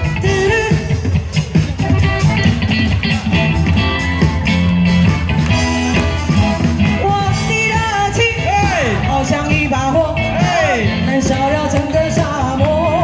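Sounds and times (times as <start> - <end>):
live rock band playing: 0.0 - 13.0
woman singing into microphone: 11.0 - 13.0.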